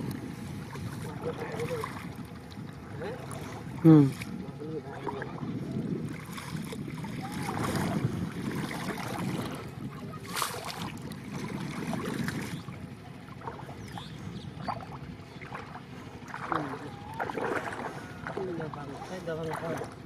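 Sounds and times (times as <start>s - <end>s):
water sloshing and splashing: 0.0s - 20.0s.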